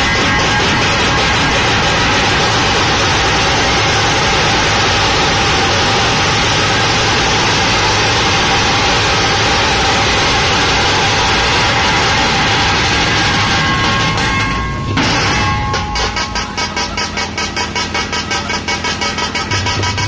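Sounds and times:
massed drums beating: 10.1s - 20.0s.

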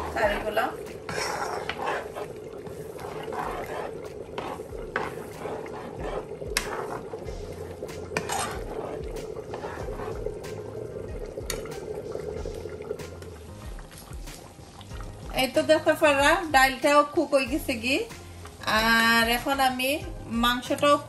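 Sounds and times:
metal spoon stirring in a pan: 0.0s - 11.8s.

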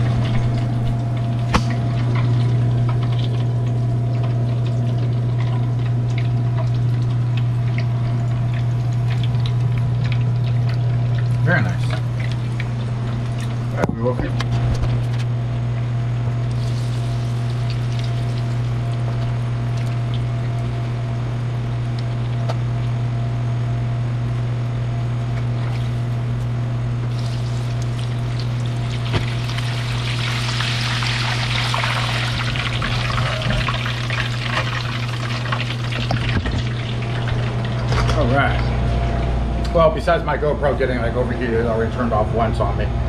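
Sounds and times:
oil sizzling and crackling: 0.0s - 13.8s, 16.3s - 23.0s, 25.5s - 38.0s
steady low hum: 0.0s - 43.0s.

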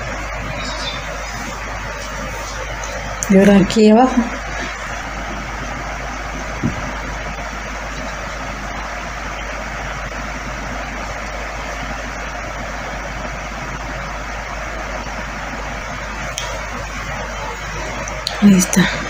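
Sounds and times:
steady rushing noise: 0.0s - 19.0s
low thump: 6.6s - 7.0s.

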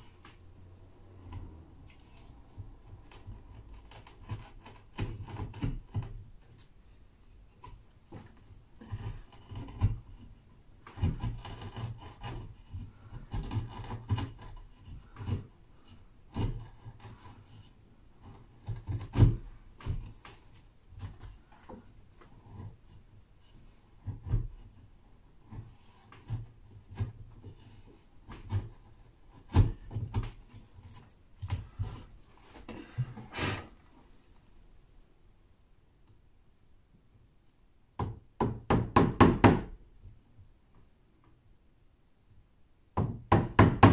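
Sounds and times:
wood chisel scraping strokes: 0.0s - 34.3s
hand tools knocking on wood: 38.0s - 39.8s, 43.0s - 43.9s.

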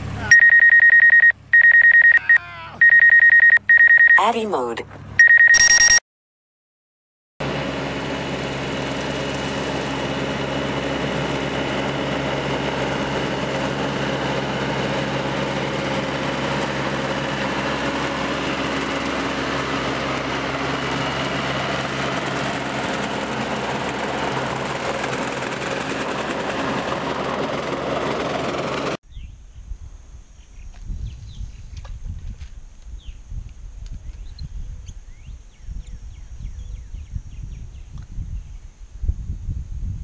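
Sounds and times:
high electronic beep: 0.3s - 4.4s, 5.2s - 6.0s
rotary cutter mowing grass: 7.4s - 29.0s
tractor diesel engine running: 7.4s - 29.0s.

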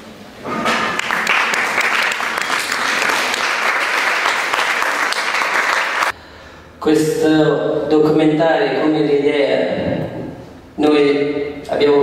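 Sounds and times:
audience applauding: 0.8s - 6.1s.

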